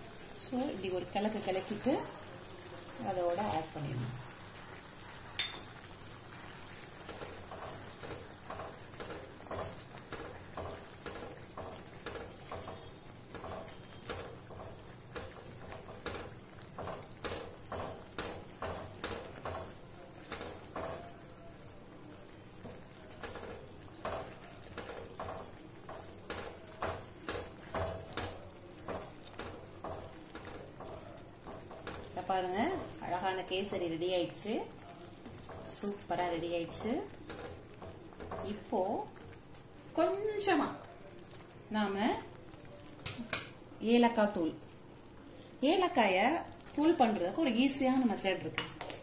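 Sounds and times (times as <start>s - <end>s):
light sizzle: 0.0s - 49.0s
wooden spatula scraping a pan: 6.3s - 21.1s.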